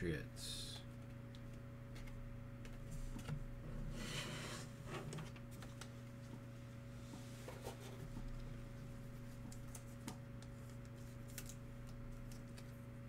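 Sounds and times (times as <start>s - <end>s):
steady low hum: 0.0s - 13.0s
cards rustling: 9.2s - 12.8s.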